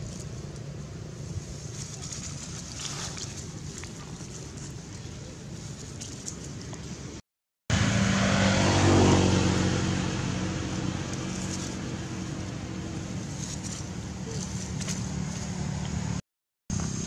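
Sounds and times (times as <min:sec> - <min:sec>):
vehicle engine passing: 0:07.7 - 0:17.0.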